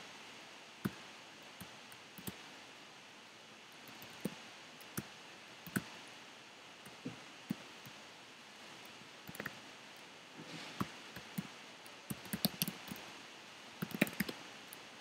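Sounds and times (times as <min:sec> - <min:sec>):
faint room hiss: 0:00.0 - 0:15.0
computer keyboard key clicks: 0:12.1 - 0:13.0, 0:13.8 - 0:14.4.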